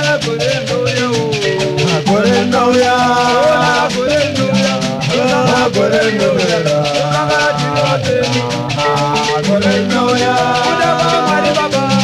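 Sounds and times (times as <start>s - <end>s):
shaker beat: 0.0s - 12.0s
gliding melody: 1.6s - 3.8s.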